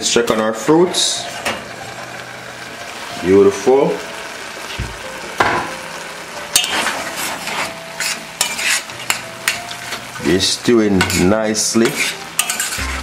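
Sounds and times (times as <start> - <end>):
pot sizzling: 0.0 - 13.0
spoon stirring in saucepan: 6.6 - 10.1, 11.0 - 13.0
spoon clinking against pan: 11.0 - 12.8.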